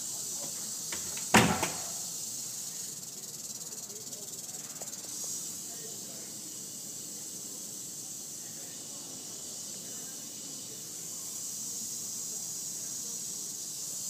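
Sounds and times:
rattlesnake rattling: 0:00.0 - 0:14.0
sharp knock: 0:01.2 - 0:02.0.

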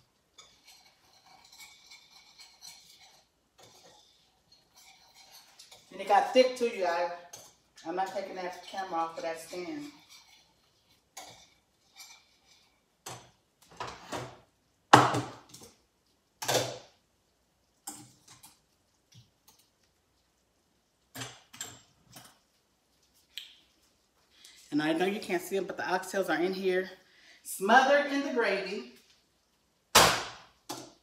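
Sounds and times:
pots clattering on a stovetop: 0:00.0 - 0:15.8, 0:16.4 - 0:17.0, 0:17.8 - 0:19.7, 0:21.0 - 0:22.6, 0:30.0 - 0:31.0.

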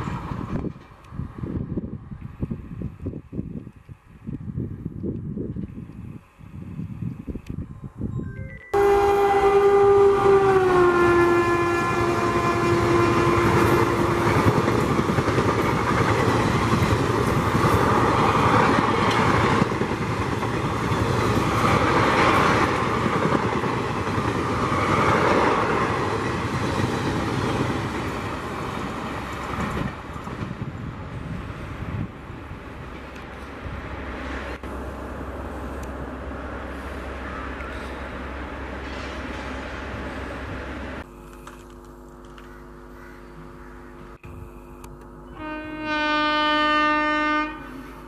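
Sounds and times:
locomotive horn: 0:08.8 - 0:14.7, 0:45.3 - 0:48.0
train wheels on rails clattering: 0:13.4 - 0:30.7.

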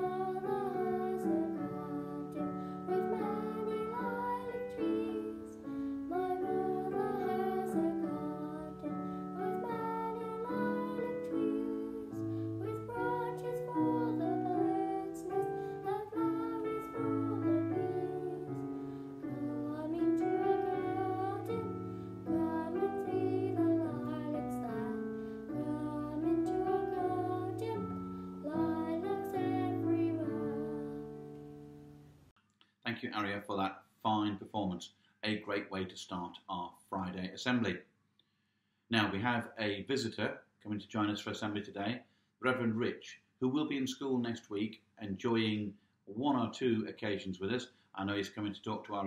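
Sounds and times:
girl singing: 0:00.0 - 0:31.7
piano accompaniment: 0:00.0 - 0:32.1.

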